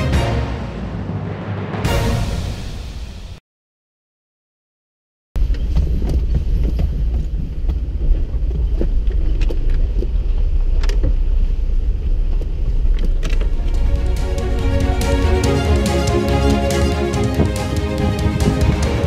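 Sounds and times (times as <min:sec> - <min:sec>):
vehicle rumbling on dirt track: 0:05.4 - 0:13.6.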